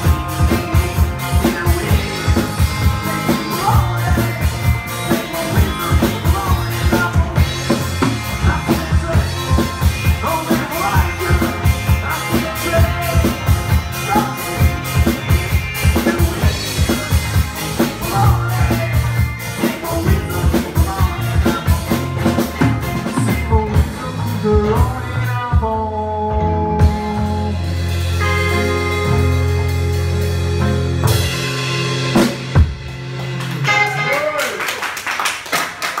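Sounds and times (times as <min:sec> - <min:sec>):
drum kit beat: 0:00.0 - 0:26.1, 0:26.8 - 0:36.0
live rock band playing: 0:00.0 - 0:36.0.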